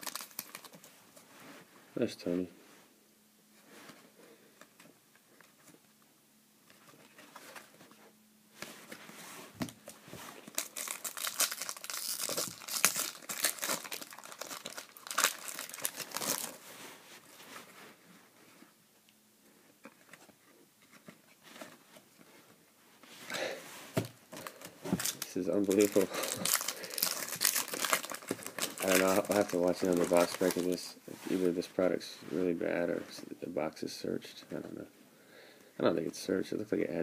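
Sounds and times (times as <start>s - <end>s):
foil wrapper tearing and crinkling: 0.0s - 0.8s, 10.4s - 16.6s, 24.4s - 30.8s.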